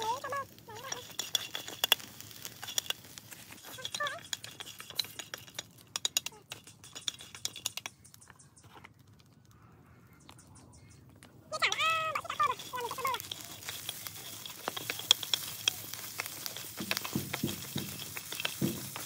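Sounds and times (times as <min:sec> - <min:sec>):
beetles crackling in a frying pan: 0:00.0 - 0:09.6, 0:10.2 - 0:19.0
chopsticks clicking against a pan: 0:12.2 - 0:19.0.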